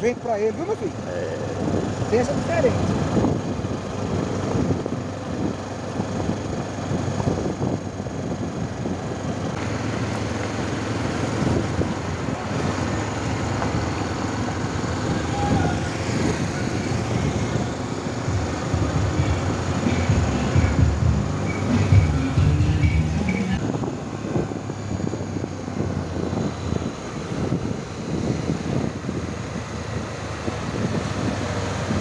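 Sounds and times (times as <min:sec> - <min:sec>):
wind rumbling on microphone: 0:00.0 - 0:32.0.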